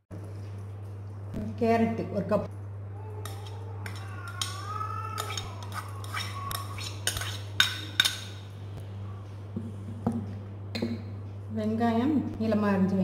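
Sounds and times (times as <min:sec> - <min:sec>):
spoon clinking against a bowl: 0:05.2 - 0:08.4.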